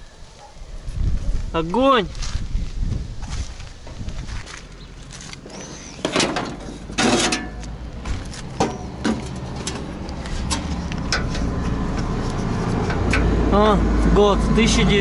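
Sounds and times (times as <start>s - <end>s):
metal scooter cowl clunking: 6.0s - 12.1s.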